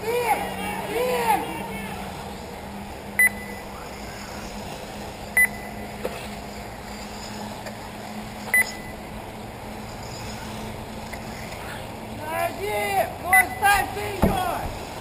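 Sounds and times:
steady low hum: 0.0 - 15.0
high electronic beeps: 3.2 - 3.7, 5.3 - 6.0, 8.5 - 9.0, 13.3 - 13.7.

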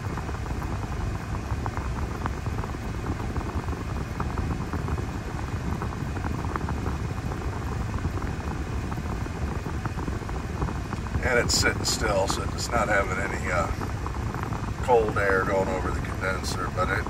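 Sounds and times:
air conditioning blower rushing: 0.0 - 17.0
engine idling rumble: 0.0 - 17.0.

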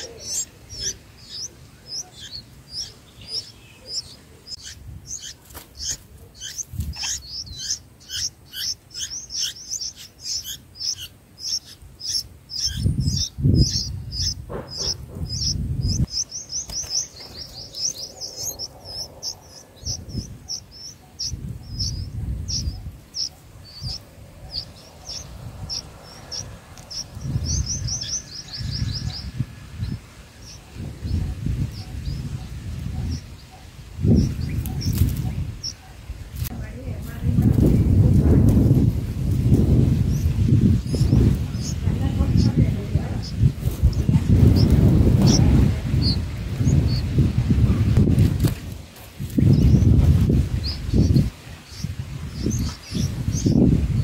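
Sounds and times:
nestling birds cheeping: 0.0 - 54.0.

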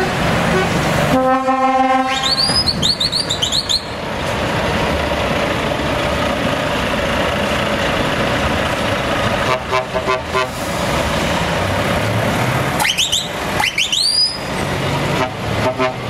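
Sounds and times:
truck horn: 0.0 - 3.9, 9.4 - 10.6, 15.0 - 16.0
diesel truck engines pulling away: 0.0 - 16.0
high whistle-like tones: 2.1 - 4.0, 12.8 - 14.5.

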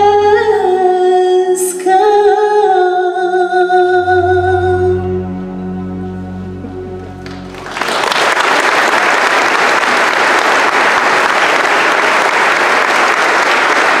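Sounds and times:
music held chord: 3.7 - 9.0
audience applause: 7.2 - 14.0.

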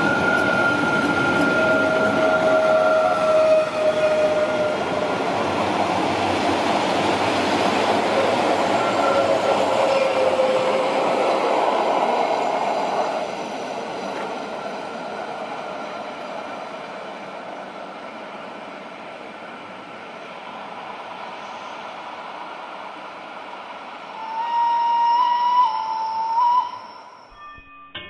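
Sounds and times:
high squealing tones: 0.0 - 5.0
train wheels rumbling on rails: 0.0 - 26.8.

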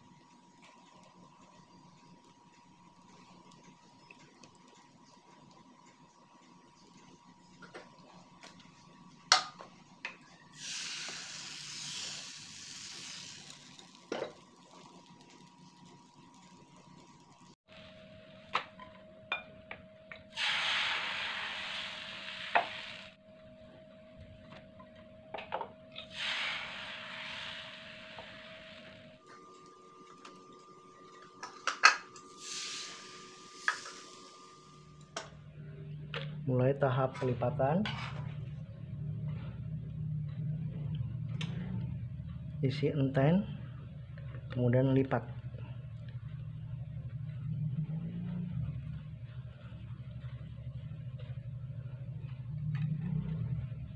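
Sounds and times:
batter sizzling in frying pan: 10.5 - 17.9, 20.3 - 23.2, 26.0 - 29.1, 31.4 - 35.0
short hiss: 20.4 - 23.1, 26.1 - 28.8.

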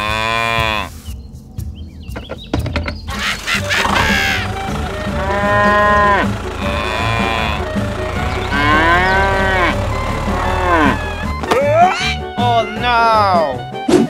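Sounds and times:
cattle mooing: 3.9 - 11.4.

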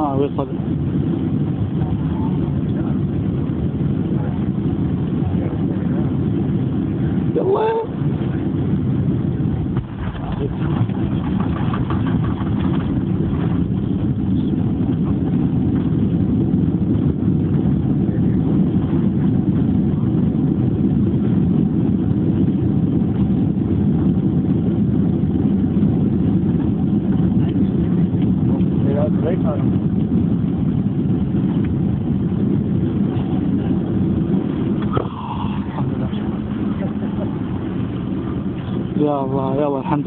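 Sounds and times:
airplane cabin roar on landing: 0.0 - 40.0.

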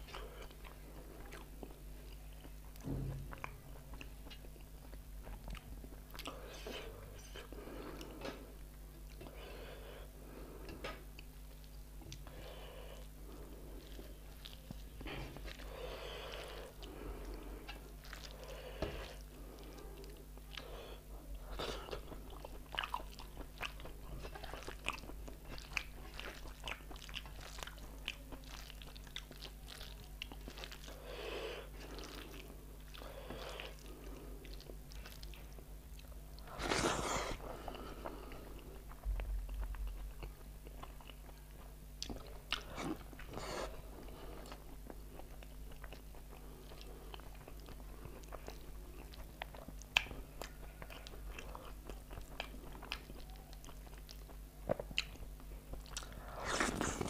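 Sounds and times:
close chewing with lip smacks: 0.0 - 9.4, 13.0 - 31.0, 31.6 - 57.0.

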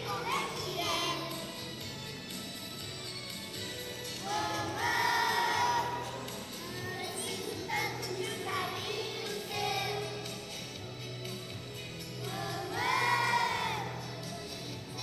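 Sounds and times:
children singing: 0.0 - 1.4, 4.2 - 6.2, 6.9 - 10.3, 12.2 - 14.0
backing music with low beat: 0.0 - 15.0.

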